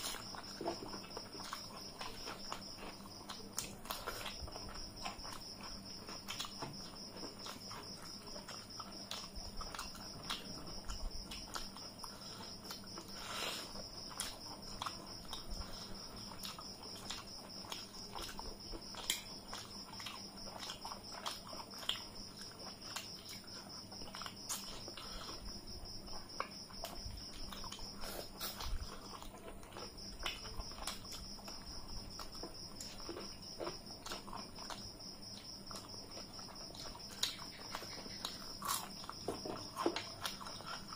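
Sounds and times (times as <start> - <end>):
chewing and mouth smacks: 0.0 - 40.9.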